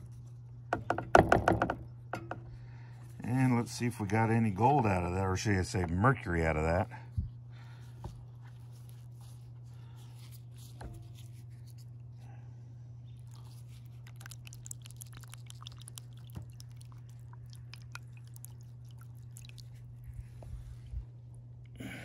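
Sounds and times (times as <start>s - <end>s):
steady low hum: 0.0s - 22.0s
small crackles: 13.2s - 20.1s
wet cloth squishing in water: 13.2s - 20.7s.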